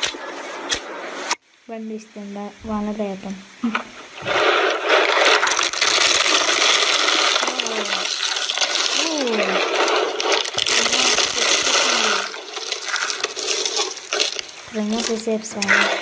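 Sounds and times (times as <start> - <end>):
dry shavings crackling and crunching: 4.3 - 16.0.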